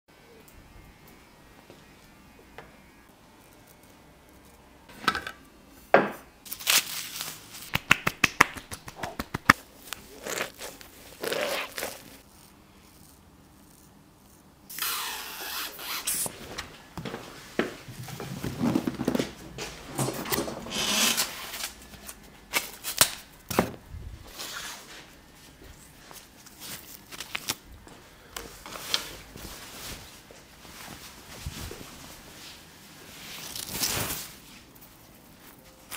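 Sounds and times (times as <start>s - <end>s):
barber cape rustling: 8.6s - 12.4s, 15.0s - 23.0s, 24.1s - 35.9s.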